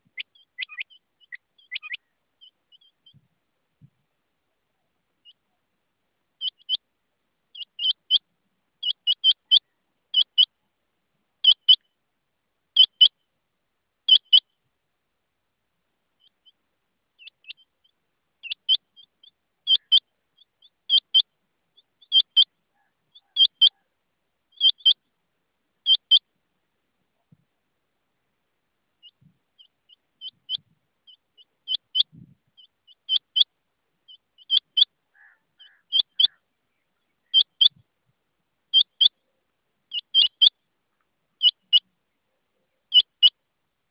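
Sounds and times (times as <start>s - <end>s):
rain quail calling: 0.0s - 3.2s, 7.5s - 8.2s, 8.8s - 10.5s, 11.4s - 11.9s, 18.4s - 25.0s, 25.8s - 26.2s, 29.0s - 33.5s, 34.1s - 37.8s, 39.9s - 40.6s, 41.4s - 41.9s, 42.8s - 43.4s.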